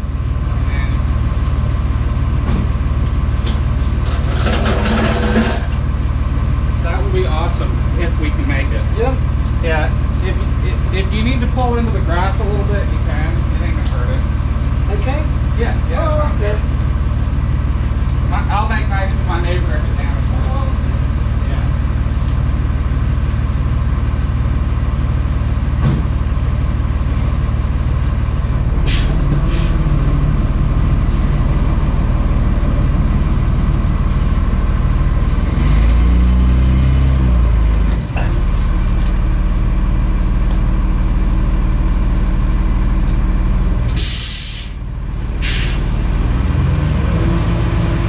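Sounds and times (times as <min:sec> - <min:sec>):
truck engine revving: 0:00.0 - 0:48.0
short air hisses: 0:28.9 - 0:29.7, 0:44.0 - 0:44.8, 0:45.4 - 0:45.9.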